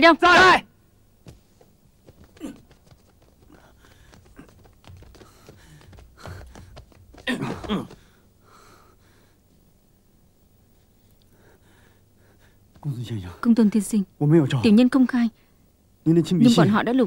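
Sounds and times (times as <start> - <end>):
footsteps and scuffling: 1.2 - 8.1.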